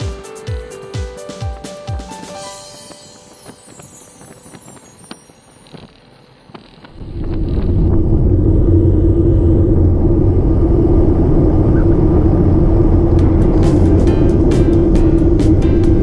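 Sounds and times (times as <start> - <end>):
bike tyre rumble on road: 3.5 - 16.0
wind rushing over microphone: 6.8 - 16.0.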